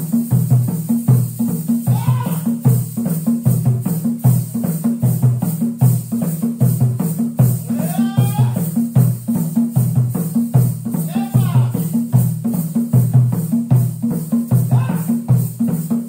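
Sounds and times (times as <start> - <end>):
voice calling out with rising glide: 1.9 - 2.6, 7.7 - 8.6.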